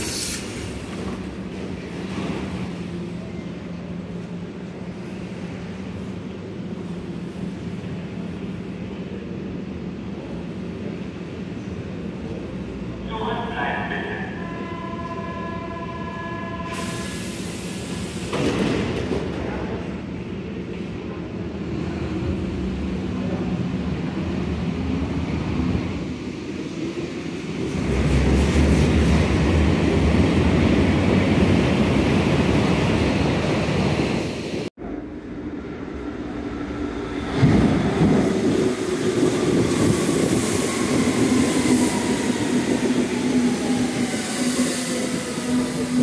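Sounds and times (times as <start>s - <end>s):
train doors hissing and clunking shut: 0.0s - 1.4s, 16.6s - 19.6s
loud deep train rumble: 0.0s - 46.0s.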